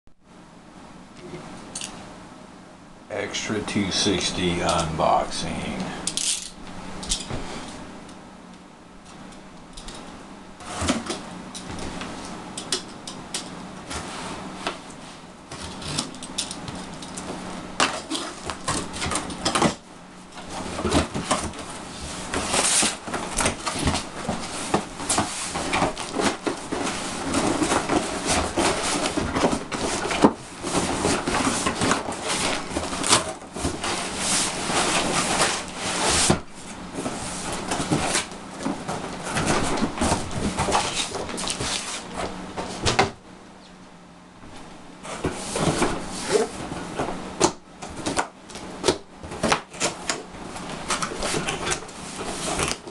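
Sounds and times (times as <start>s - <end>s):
cardboard rustling and scraping: 10.6s - 12.2s, 13.8s - 43.1s, 45.0s - 52.9s.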